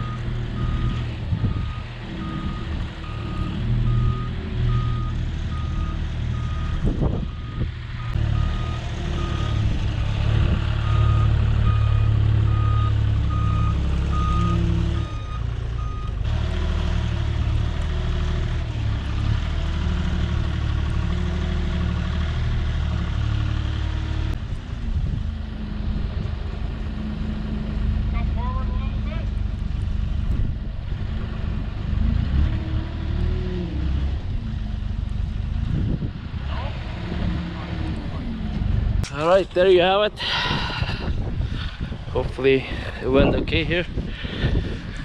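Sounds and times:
reversing alarm beeping: 0.0 - 9.7, 10.8 - 16.2
heavy vehicle engine running: 0.0 - 45.0.

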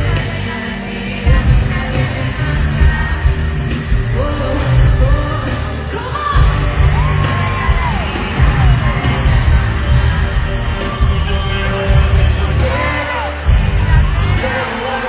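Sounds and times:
live concert music with bass beat: 0.0 - 15.0
sung vocal melody: 0.0 - 15.0
audience yelling: 5.9 - 15.0.

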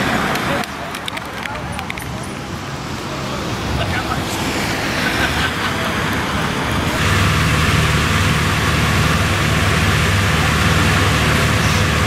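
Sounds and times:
passing road traffic: 0.0 - 12.0
vehicle engine running: 5.8 - 12.0.

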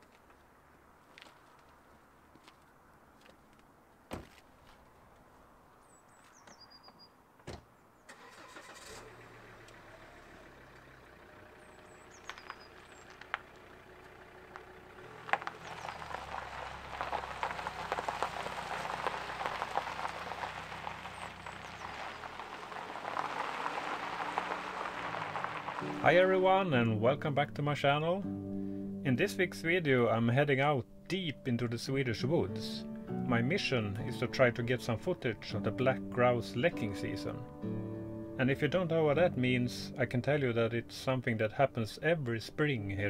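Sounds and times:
thump: 7.4 - 7.7
car engine running: 8.1 - 26.1
rough noise of car moving: 8.1 - 26.4.

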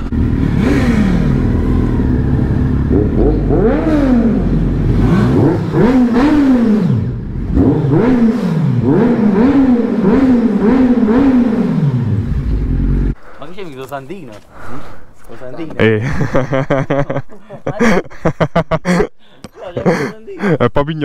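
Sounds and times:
motorcycle engine revving: 0.0 - 13.2.

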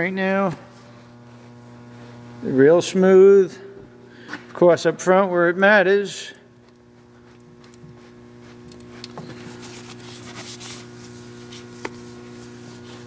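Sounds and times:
electrical hum: 0.0 - 13.0
cloth wiping metal: 8.0 - 13.0.

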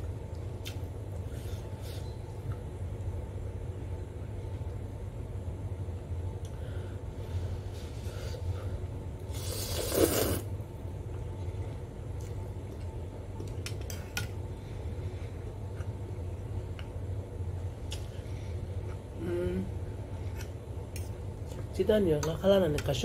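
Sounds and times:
loud slurp of noodles: 9.3 - 10.5.

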